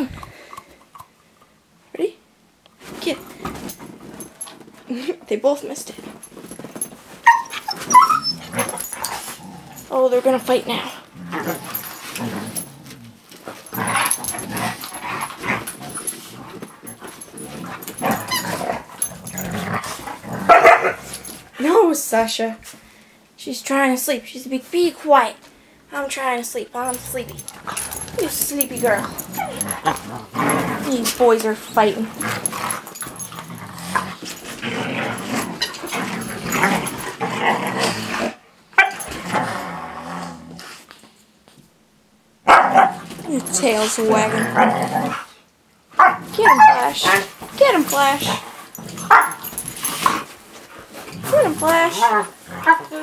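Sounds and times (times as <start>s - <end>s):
dogs scuffling: 2.8s - 5.1s, 5.7s - 21.9s, 26.3s - 37.4s, 42.8s - 45.2s, 46.0s - 53.0s
dogs growling and barking: 6.2s - 21.6s, 26.8s - 40.8s, 42.4s - 53.0s.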